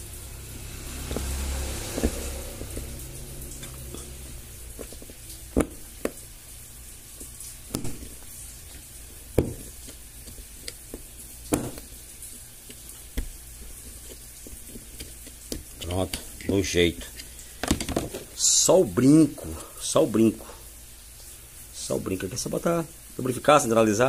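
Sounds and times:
low hum: 0.0 - 9.7.

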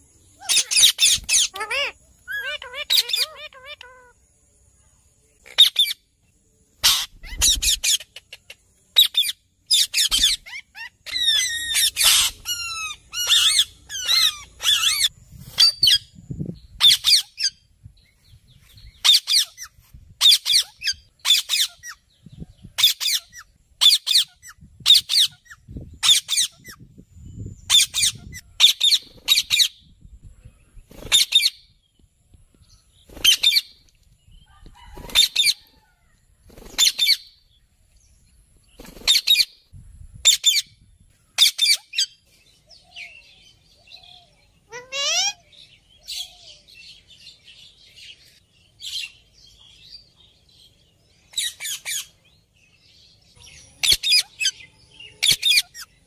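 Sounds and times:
parakeet giving shrill calls: 0.4 - 4.1, 6.8 - 8.2, 9.0 - 16.0, 16.8 - 17.5, 22.8 - 26.8, 27.7 - 29.7, 44.7 - 45.4, 53.8 - 55.9.

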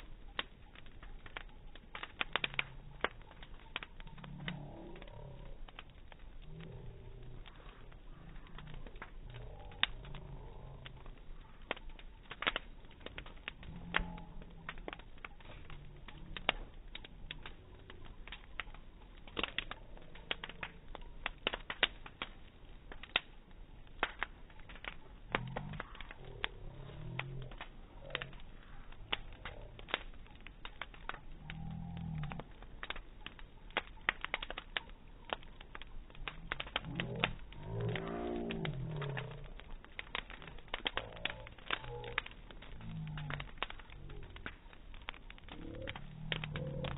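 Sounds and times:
slowed bonfire crackling and popping: 0.0 - 46.9
slurred slowed-down murmurs: 0.0 - 46.9.

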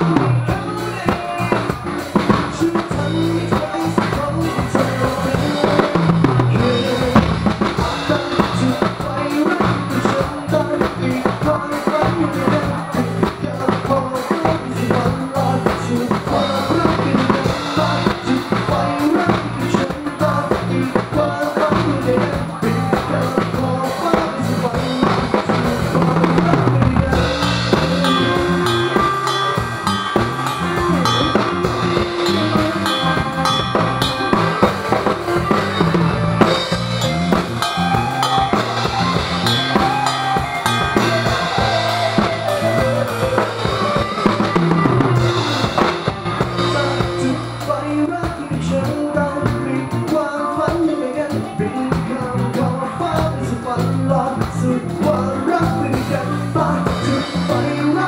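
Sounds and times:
drum kit playing: 0.0 - 58.0
steady bass line: 0.0 - 58.0
sustained higher instrument notes: 26.6 - 48.1.

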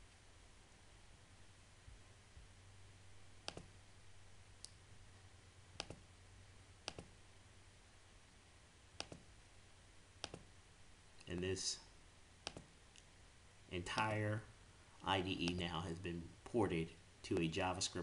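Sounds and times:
faint low hum: 0.0 - 18.0
mouse button clicks: 3.4 - 3.7, 5.8 - 6.0, 6.9 - 7.1, 9.0 - 9.3, 10.2 - 10.5, 12.4 - 12.7.

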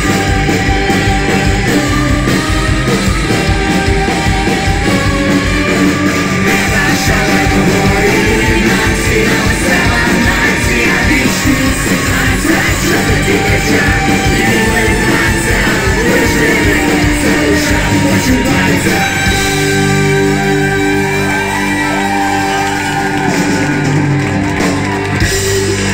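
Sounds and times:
live rock band with brass: 0.0 - 25.9
man singing and shouting: 6.0 - 23.0.

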